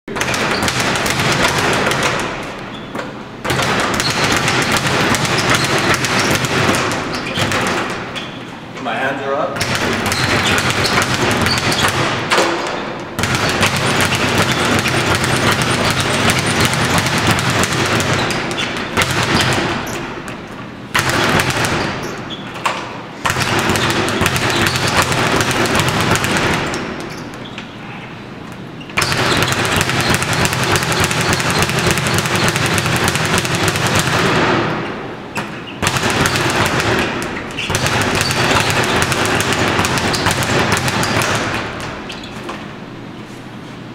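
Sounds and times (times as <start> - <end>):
speed bag rattling: 13.2 - 20.0.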